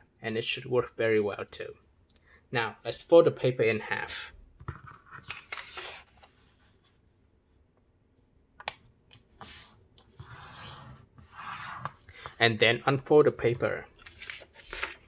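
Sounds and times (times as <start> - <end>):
paper rustling and sliding: 4.9 - 6.9, 9.4 - 12.4, 13.6 - 15.0
hand rubbing along paper crease: 9.4 - 12.4.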